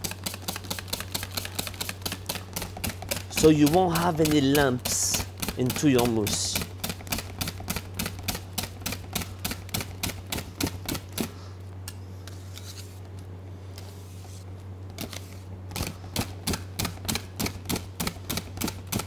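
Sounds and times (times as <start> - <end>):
whisk clicking against steel bowl: 0.0 - 9.6.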